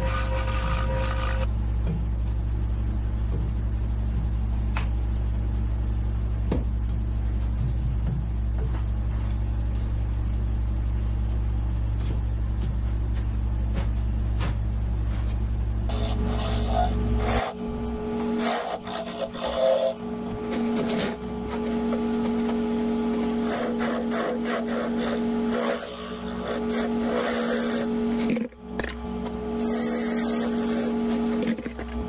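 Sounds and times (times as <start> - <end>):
gouge cutting wood on lathe: 0.0 - 1.5, 15.9 - 20.0, 23.2 - 28.0
low machine hum: 0.0 - 32.0.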